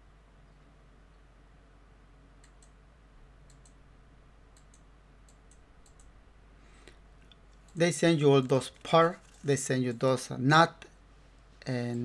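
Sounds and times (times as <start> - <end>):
faint sharp clicks: 2.4 - 2.8, 3.4 - 3.8, 4.5 - 6.1.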